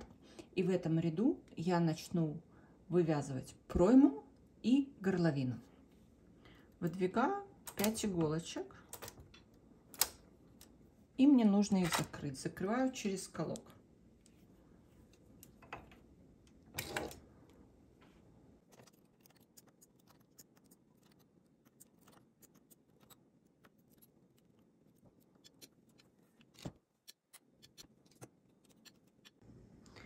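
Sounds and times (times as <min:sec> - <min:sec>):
metal tool clicking on needles: 0:07.6 - 0:08.1, 0:25.2 - 0:29.4.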